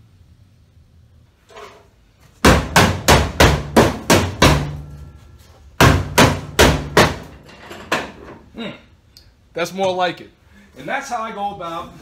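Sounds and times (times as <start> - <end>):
hammer striking sheet metal: 2.4 - 5.2, 5.8 - 7.4.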